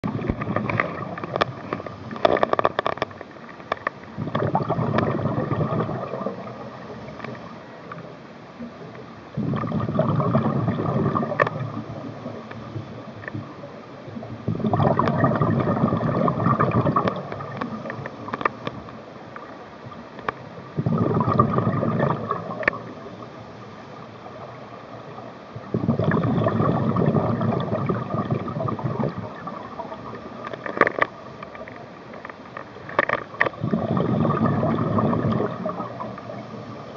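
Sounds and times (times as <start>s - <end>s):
diver exhaling bubbles underwater: 0.0s - 1.7s, 4.1s - 7.0s, 9.3s - 12.5s, 14.4s - 18.3s, 20.7s - 23.2s, 25.6s - 30.4s, 33.5s - 36.6s.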